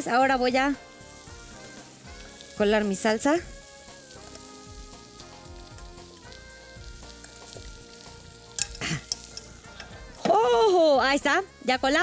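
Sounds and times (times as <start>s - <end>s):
fish sizzling in a skillet: 0.0s - 12.0s
soft background music: 0.0s - 12.0s.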